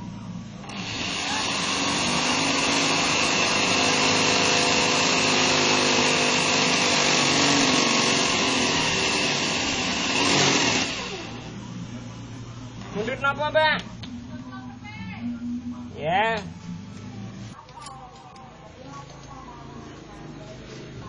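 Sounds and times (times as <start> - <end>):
electric drill drilling into metal: 0.6 - 11.5.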